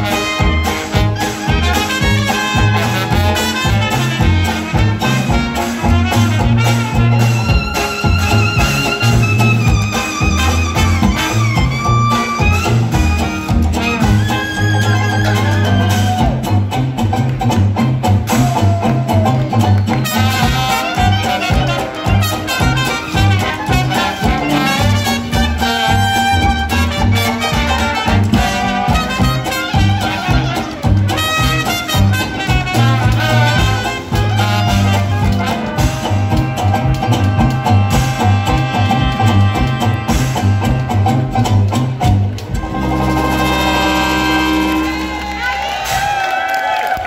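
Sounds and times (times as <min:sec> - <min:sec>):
trumpet: 0:00.0 - 0:16.6, 0:18.3 - 0:47.0
trombone: 0:00.0 - 0:18.8, 0:19.4 - 0:46.8
sousaphone bass line: 0:00.0 - 0:45.4
guitars: 0:00.0 - 0:46.2
jazz band playing: 0:00.0 - 0:47.0.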